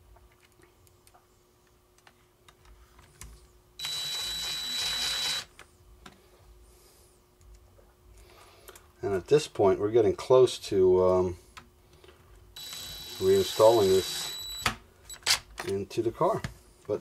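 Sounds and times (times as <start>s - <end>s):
cordless driver whining: 3.8s - 5.5s, 12.6s - 14.8s.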